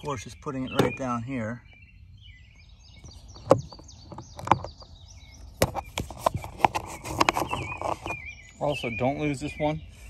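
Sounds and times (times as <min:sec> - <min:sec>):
birds chirping faintly: 0:00.0 - 0:10.0.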